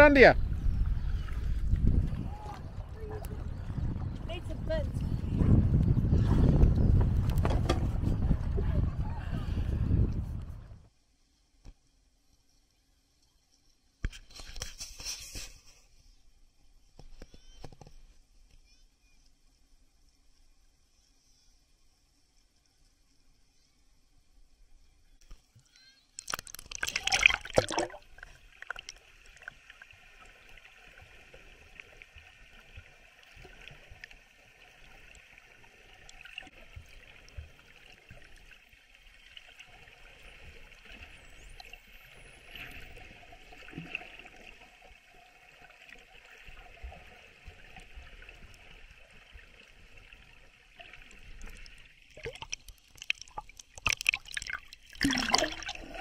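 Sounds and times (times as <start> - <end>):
water splashing: 26.2 - 56.0.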